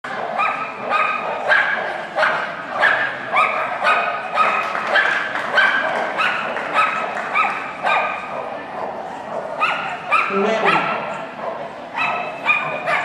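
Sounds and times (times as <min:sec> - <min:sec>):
dog barking high-pitched: 0:00.1 - 0:13.0.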